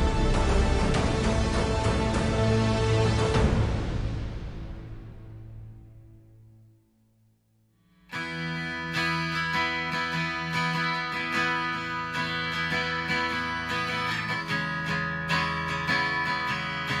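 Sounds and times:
strummed acoustic guitar music: 8.1 - 17.0.

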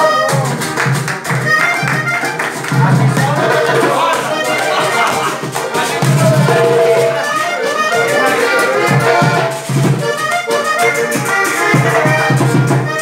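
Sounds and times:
guitar: 0.0 - 13.0
fast percussion rhythm: 0.2 - 13.0
button accordion melody: 1.2 - 13.0
bass notes: 2.8 - 10.2.

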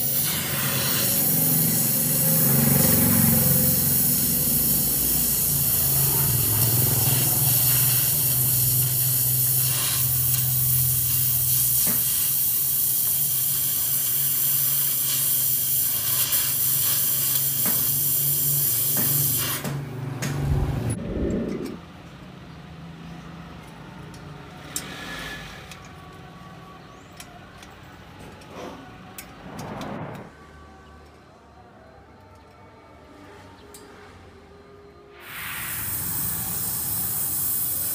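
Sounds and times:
welding arc crackling and hissing: 0.0 - 19.7, 35.2 - 37.9
low hum: 20.2 - 22.2.

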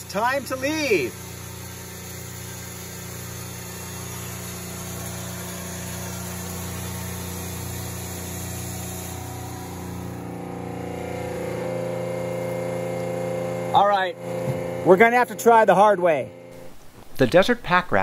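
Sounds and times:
mechanical hum: 0.0 - 18.0
higher steady hum: 7.9 - 17.5.

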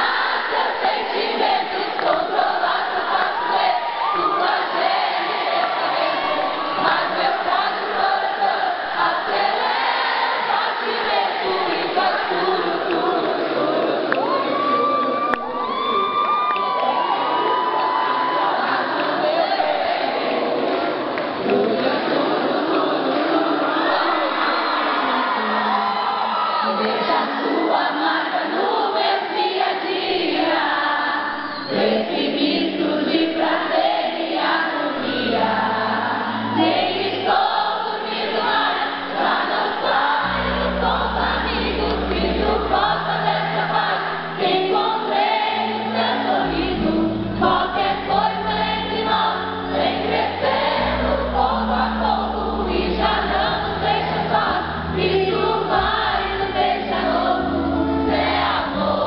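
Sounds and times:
woman singing into microphone: 10.8 - 14.7, 26.6 - 59.0.

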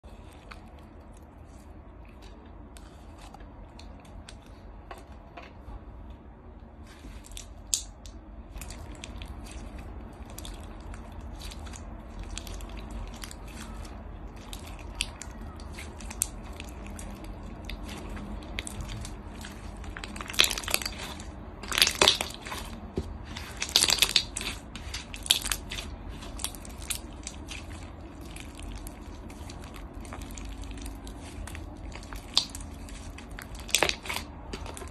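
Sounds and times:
beaded slime crackling and popping: 7.1 - 34.9.

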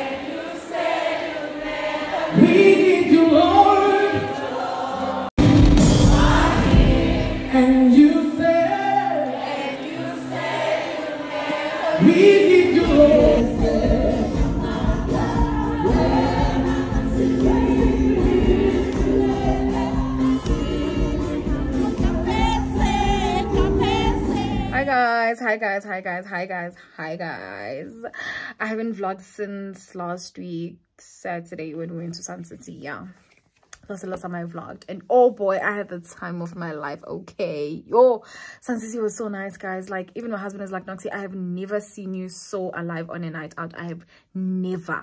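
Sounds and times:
gospel choir singing: 0.0 - 24.9
bass accompaniment: 5.4 - 8.8, 12.0 - 24.8.

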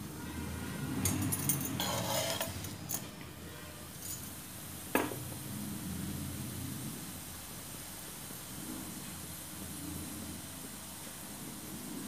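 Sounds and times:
kitchen utensils clattering: 1.1 - 3.2, 4.0 - 4.4.

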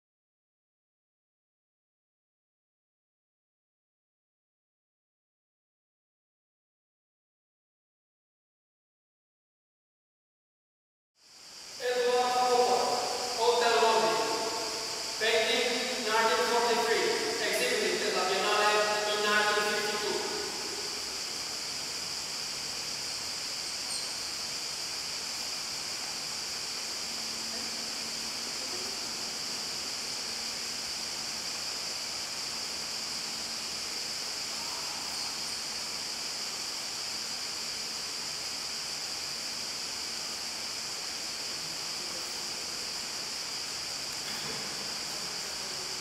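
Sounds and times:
steady background hiss: 11.2 - 46.0.

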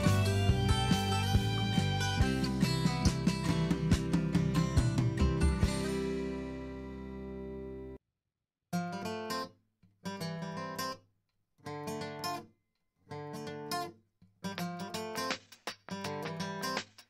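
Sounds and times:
acoustic guitar strumming: 0.0 - 7.9, 13.2 - 17.0.

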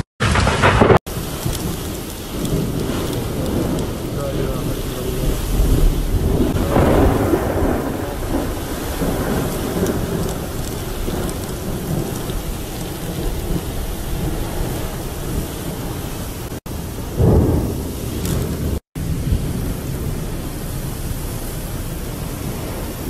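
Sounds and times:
heavy rain: 0.0 - 23.0
deep low rumble: 0.4 - 16.5
strong wind: 0.7 - 23.0.

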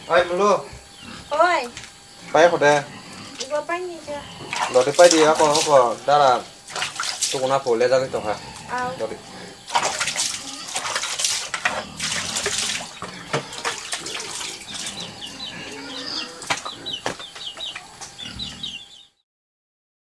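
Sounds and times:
small bird chirping: 0.0 - 5.6, 12.7 - 19.2
water splashing and pouring: 4.6 - 6.0, 6.7 - 7.6, 9.7 - 15.0.

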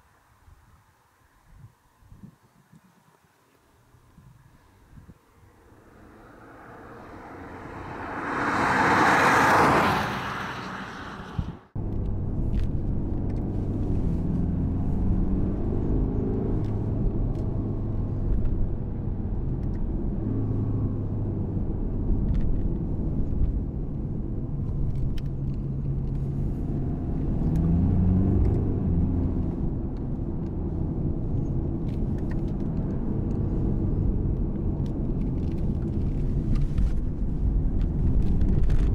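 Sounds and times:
road noise: 0.0 - 38.9
car passing by: 5.3 - 11.8
diesel engine drone: 5.3 - 38.9.

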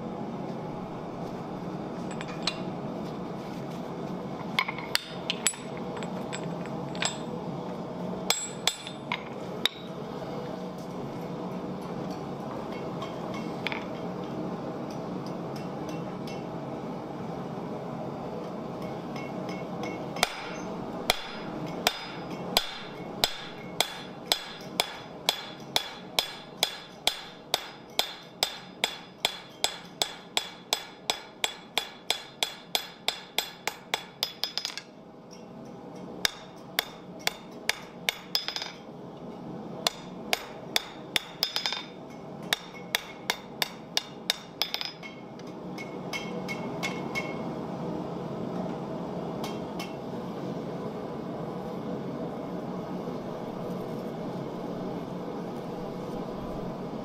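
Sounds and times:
hammer striking steel on anvil: 8.3 - 10.0, 18.8 - 38.9, 39.8 - 47.4.

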